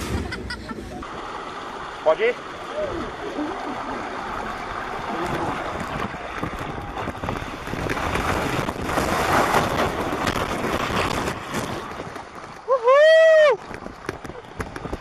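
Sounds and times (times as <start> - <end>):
rushing water: 0.0 - 15.0
wind noise on microphone: 5.2 - 12.6, 13.3 - 15.0.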